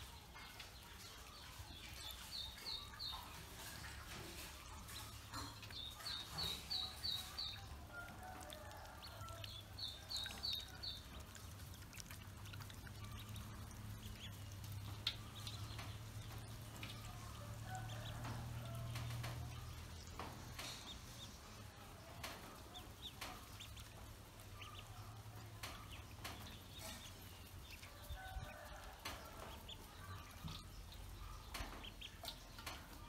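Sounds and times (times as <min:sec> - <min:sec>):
water splashing and lapping: 0:00.0 - 0:24.7
ducklings peeping: 0:00.0 - 0:33.0.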